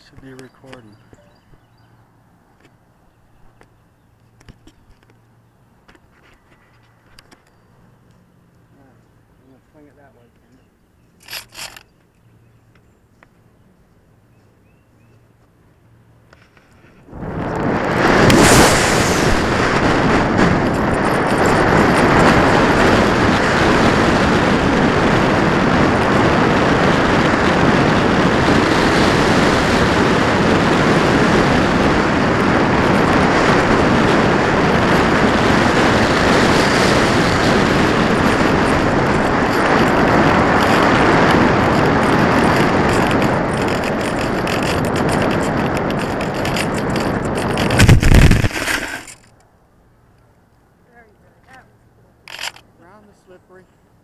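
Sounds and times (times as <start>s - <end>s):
airflow rushing over camera: 16.4s - 49.4s.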